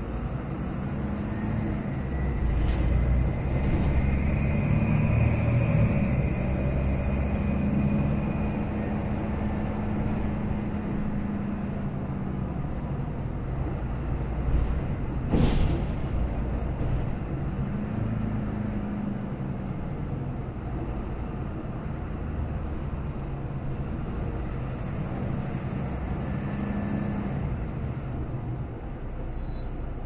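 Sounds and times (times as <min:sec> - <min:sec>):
high-pitched squeal: 0:00.0 - 0:10.6, 0:29.0 - 0:30.0
bus engine drone: 0:00.0 - 0:30.0
road rumble: 0:00.0 - 0:30.0.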